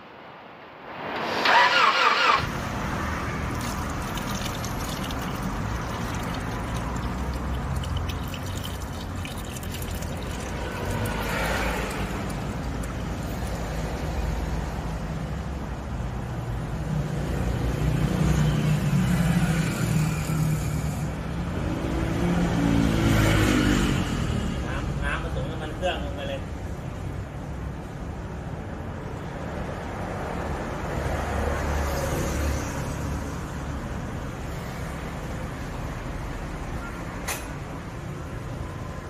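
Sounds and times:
short loud burst: 0.0s - 2.7s
oil pouring into bucket: 3.4s - 13.6s.

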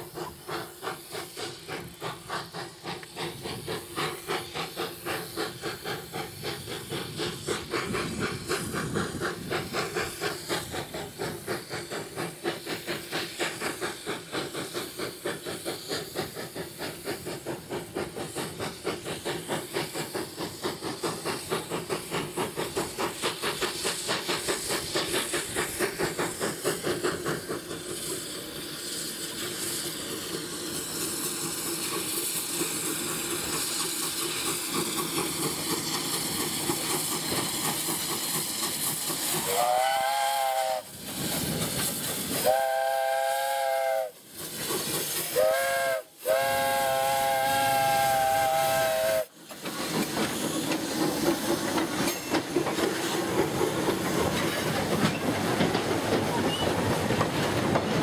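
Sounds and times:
steam hiss: 0.0s - 58.0s
steam locomotive exhaust beats: 0.0s - 58.0s
steam whistle blasts: 39.4s - 41.0s, 42.4s - 44.2s, 45.2s - 49.3s.

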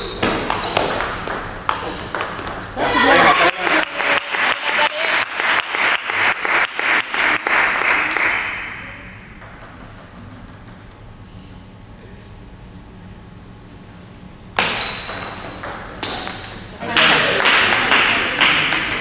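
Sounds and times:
spectators clapping: 2.9s - 8.8s, 16.9s - 19.0s.

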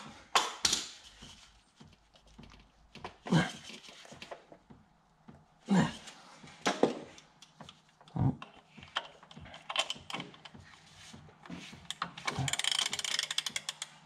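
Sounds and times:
hand tools knocking and clicking: 8.4s - 10.7s, 11.8s - 14.0s
ratchet clicks: 12.3s - 14.0s.

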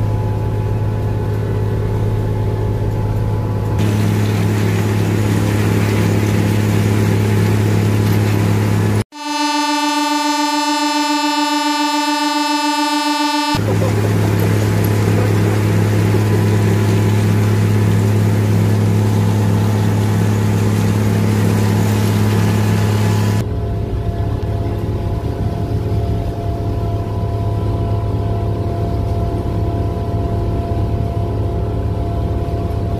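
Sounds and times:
machine engine running: 0.0s - 23.9s
faint steady whine: 9.2s - 16.6s.

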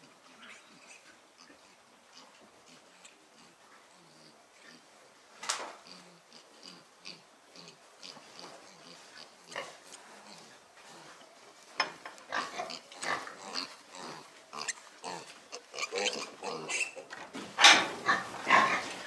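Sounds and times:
piglets squealing: 14.6s - 17.0s.

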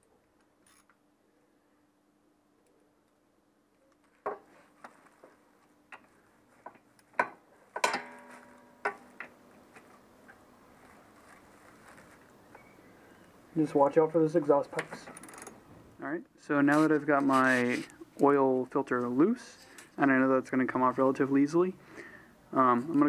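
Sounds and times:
ringing metal clank: 7.8s - 9.1s.

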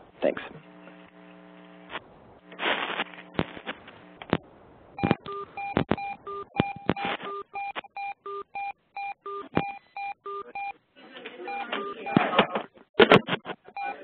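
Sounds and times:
sharp clicks: 5.0s - 7.9s
short electronic beeps: 5.0s - 10.7s.

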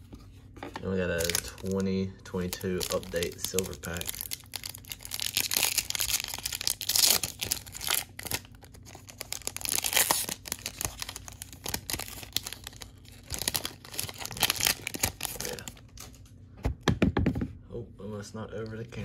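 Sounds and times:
foil wrapper tearing and crinkling: 1.0s - 16.1s.

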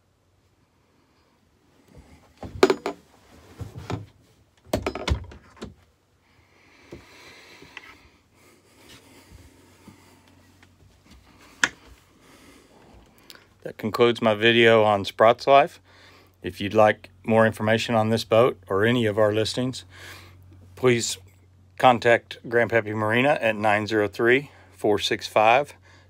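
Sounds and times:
knocks and thumps: 2.0s - 5.8s.

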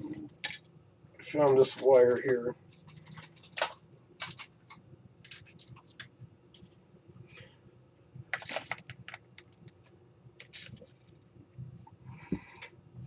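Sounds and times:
thin wire clicking and scratching: 0.1s - 0.7s, 1.3s - 6.2s.

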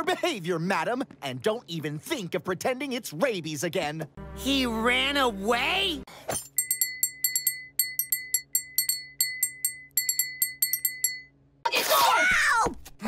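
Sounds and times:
fork tapping on glass: 6.5s - 11.3s.

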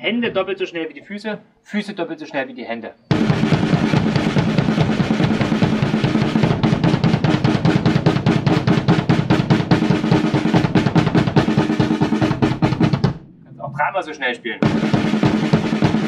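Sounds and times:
bass drum pedal strokes: 3.1s - 13.3s
drum strokes with sticks: 3.1s - 13.4s, 14.6s - 16.0s.

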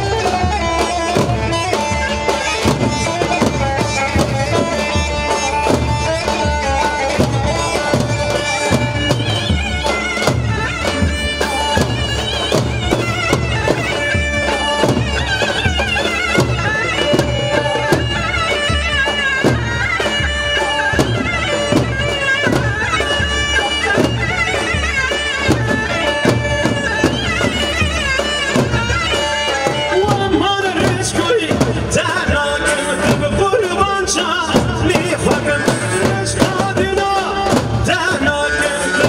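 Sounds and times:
drum beat: 0.0s - 39.0s
reedy wind instrument melody: 0.0s - 39.0s.

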